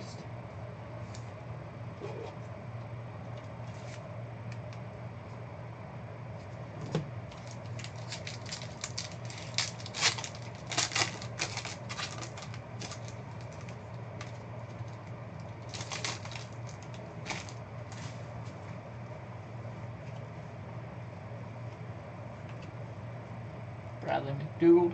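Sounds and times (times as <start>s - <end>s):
foil wrapper tearing and crinkling: 7.3s - 17.6s.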